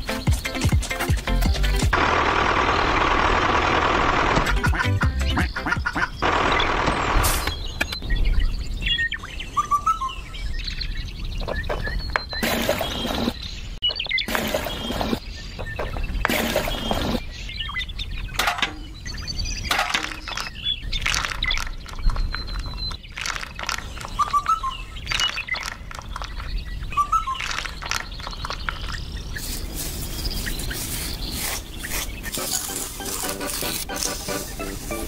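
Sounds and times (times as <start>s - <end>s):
handling clicks and knocks: 18.4s - 19.0s, 19.7s - 26.5s, 27.4s - 29.0s.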